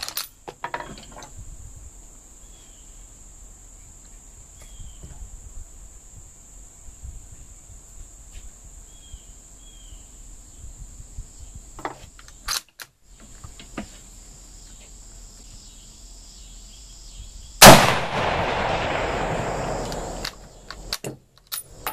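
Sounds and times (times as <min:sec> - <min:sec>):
crickets chirring: 0:00.0 - 0:21.9
rifle shot with rolling echo: 0:17.6 - 0:20.9
rifle bolt clicks: 0:19.8 - 0:21.7.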